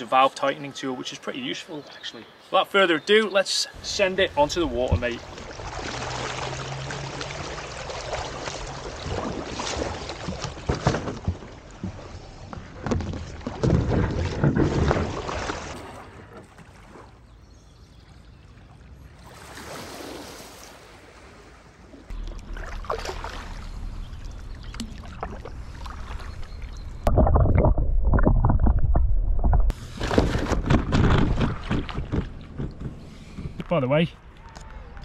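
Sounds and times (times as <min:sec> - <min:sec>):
paddle splashing water: 0:03.8 - 0:28.8, 0:29.7 - 0:33.6
wind rumble on microphone: 0:23.7 - 0:33.7.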